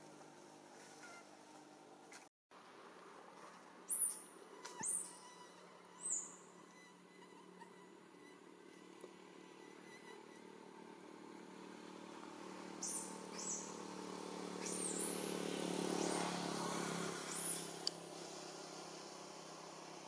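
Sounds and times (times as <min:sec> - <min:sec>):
vehicle engine humming: 0:03.3 - 0:20.0
high chirping calls: 0:06.0 - 0:06.4, 0:12.8 - 0:13.8, 0:14.6 - 0:15.3, 0:17.3 - 0:17.7.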